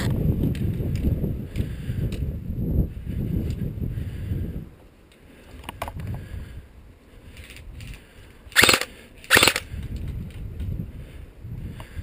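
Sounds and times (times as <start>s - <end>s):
wind rumbling on microphone: 0.0s - 12.0s
airsoft rifle bursts: 8.5s - 9.7s.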